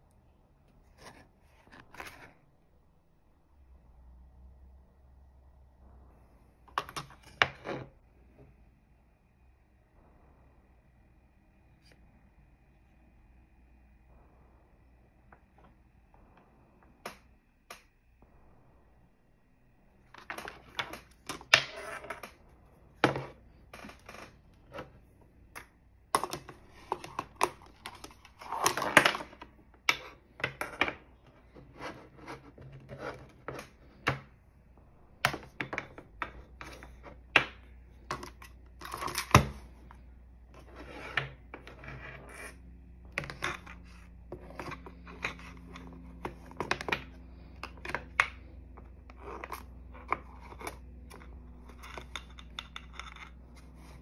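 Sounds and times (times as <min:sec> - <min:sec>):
faint low hum: 0:00.0 - 0:54.0.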